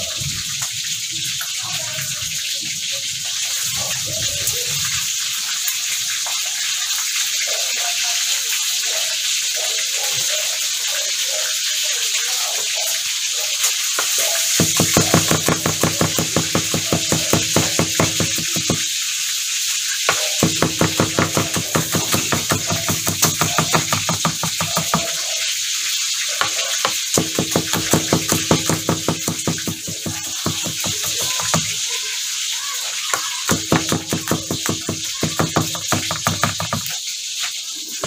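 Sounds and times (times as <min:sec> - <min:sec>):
knife chopping on plastic board: 0:14.0 - 0:18.9, 0:20.1 - 0:25.2, 0:26.4 - 0:31.8, 0:33.1 - 0:37.0.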